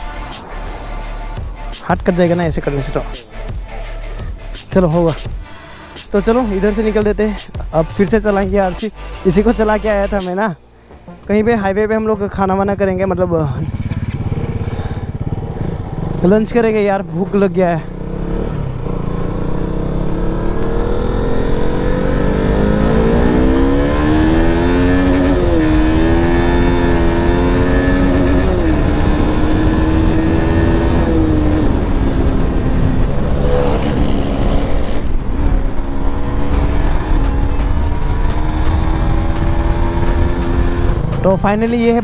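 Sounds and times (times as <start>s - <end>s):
motorcycle engine accelerating: 10.9s - 42.0s
wind rumble: 18.0s - 42.0s.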